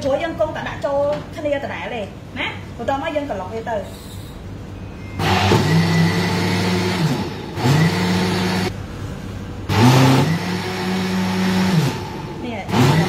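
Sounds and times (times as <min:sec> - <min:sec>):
electric blender running: 0:05.2 - 0:08.7, 0:09.7 - 0:13.0.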